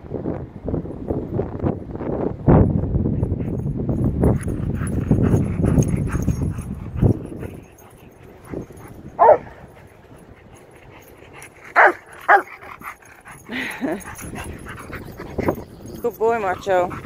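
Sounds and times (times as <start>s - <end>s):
dog yelping: 7.4s - 9.8s, 11.7s - 15.8s.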